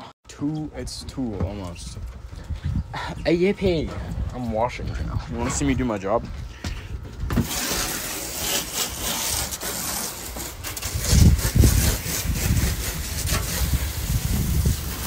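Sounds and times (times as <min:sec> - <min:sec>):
low rumble on microphone: 0:00.4 - 0:08.4, 0:10.7 - 0:15.0
hose water spraying on concrete: 0:07.4 - 0:15.0.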